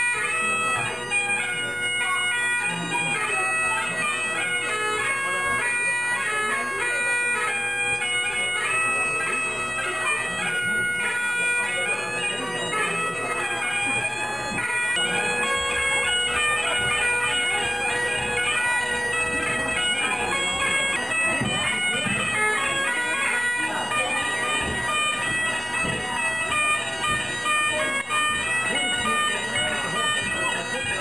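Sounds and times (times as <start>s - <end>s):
bagpipe melody with drone: 0.0s - 31.0s.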